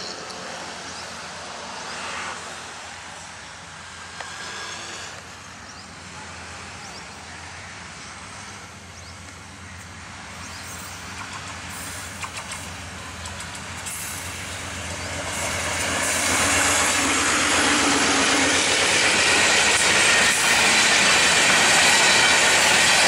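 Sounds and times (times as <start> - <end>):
locomotive engine drone: 0.0 - 23.0
train rumble: 0.0 - 23.0.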